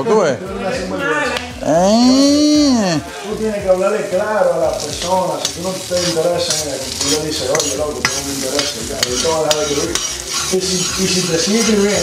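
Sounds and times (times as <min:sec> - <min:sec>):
shrimp sizzling in frying pan: 0:01.6 - 0:12.0
utensil stirring and scraping: 0:04.8 - 0:12.0.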